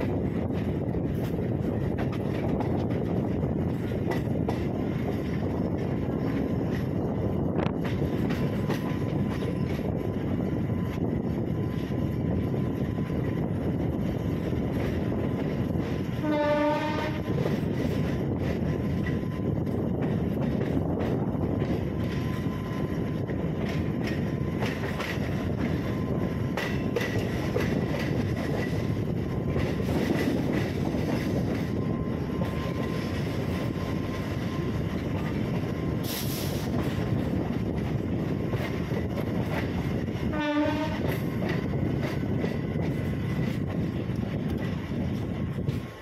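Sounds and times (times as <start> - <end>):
train wheels rumbling on rails: 0.0 - 46.0
train horn blast: 16.2 - 17.4, 40.2 - 41.2.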